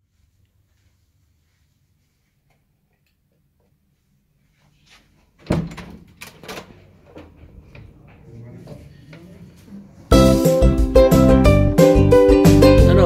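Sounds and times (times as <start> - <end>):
door knocking and rattling: 5.4 - 7.4
door latch clacking: 5.5 - 7.9.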